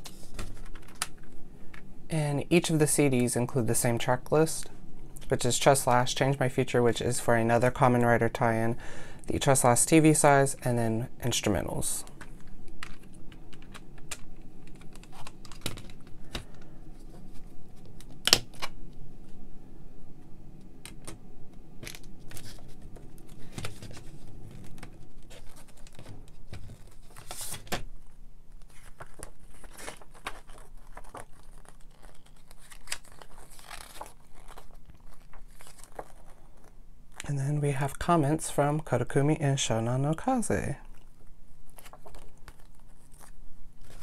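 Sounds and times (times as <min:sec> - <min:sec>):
paper booklet rustling: 0:00.0 - 0:01.4, 0:11.5 - 0:18.7, 0:21.8 - 0:37.4, 0:41.0 - 0:44.0.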